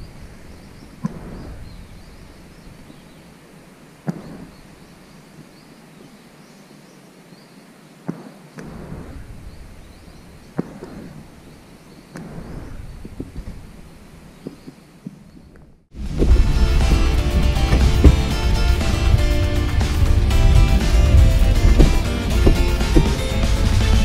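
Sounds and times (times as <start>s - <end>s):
distant birds chirping: 0.0s - 24.0s
wind rumble on microphone: 12.2s - 13.9s, 15.3s - 24.0s.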